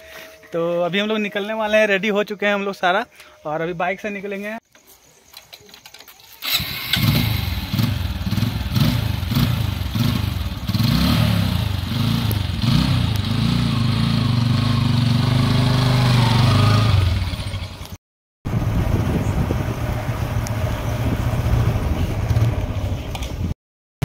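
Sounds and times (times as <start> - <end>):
motorcycle engine starting and revving: 6.3 - 23.6.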